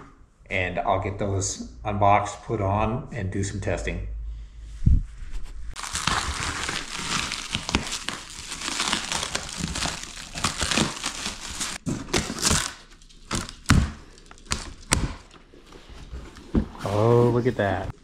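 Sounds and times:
plastic wrap crinkling and tearing: 5.8 - 15.4
scissors cutting plastic: 5.9 - 15.4.

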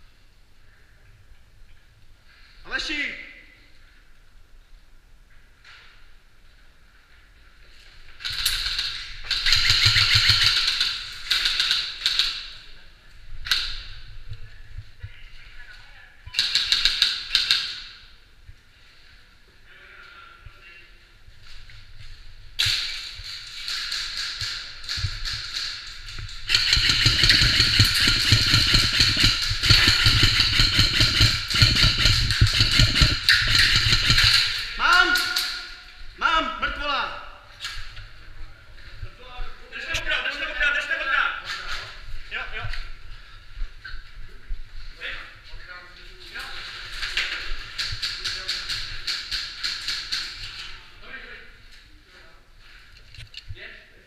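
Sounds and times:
electric rifles firing bursts: 8.3 - 12.6, 16.4 - 17.8, 22.6 - 34.8.

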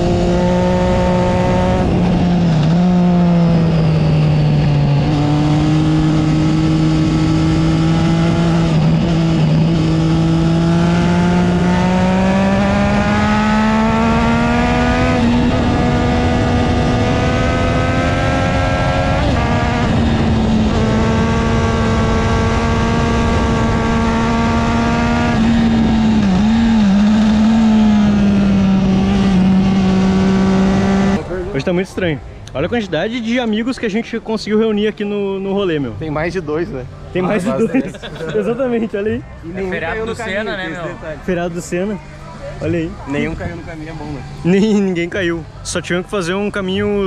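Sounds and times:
motorcycle engine at speed: 0.0 - 31.2.

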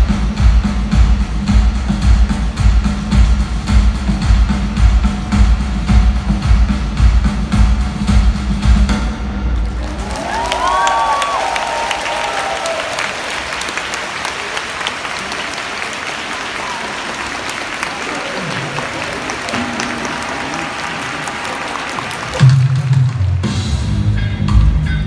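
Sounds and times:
loud music with heavy beat: 0.0 - 9.5, 22.4 - 25.0
stadium crowd applauding: 9.5 - 23.8.

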